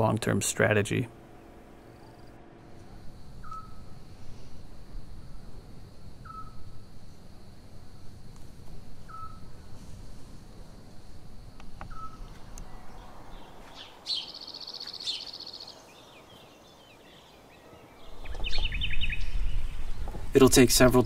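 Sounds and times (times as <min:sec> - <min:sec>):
birds chirping: 0:00.0 - 0:04.6, 0:05.2 - 0:06.8, 0:09.0 - 0:09.7, 0:11.7 - 0:21.0
high insect trill: 0:00.6 - 0:21.0.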